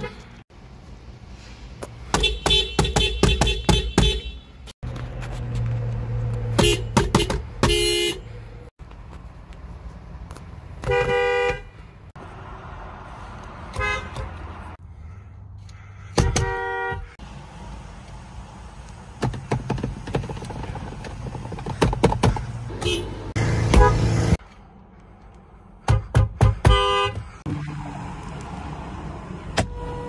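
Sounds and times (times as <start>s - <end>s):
car horns honking: 2.1s - 4.7s, 6.5s - 8.4s, 10.8s - 11.8s, 13.7s - 14.5s, 16.1s - 17.2s, 22.7s - 24.4s, 25.9s - 27.4s, 29.5s - 30.0s.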